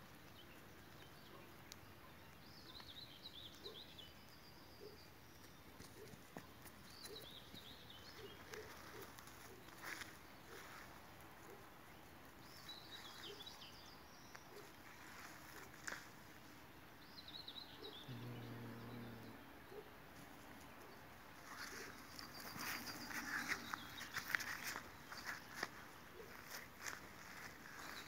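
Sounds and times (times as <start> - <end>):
faint bird chirps: 17.2 - 19.9
scuffling and rustling in weeds: 21.4 - 28.0.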